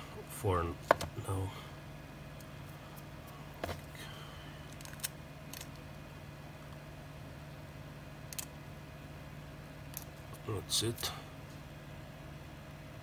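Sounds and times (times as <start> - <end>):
steady low hum: 0.0 - 13.0
tape clicks and crackles: 4.6 - 6.0, 8.3 - 8.6, 9.9 - 10.4.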